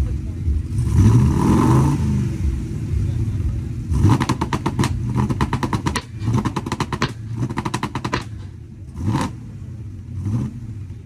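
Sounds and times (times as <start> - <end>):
engine rev blips: 0.4 - 11.0
exhaust crackling and popping: 2.3 - 11.0.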